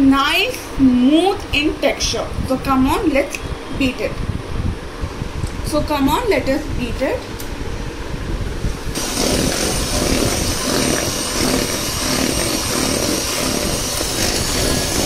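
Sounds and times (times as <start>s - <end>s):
electric hand mixer running: 9.0s - 15.0s.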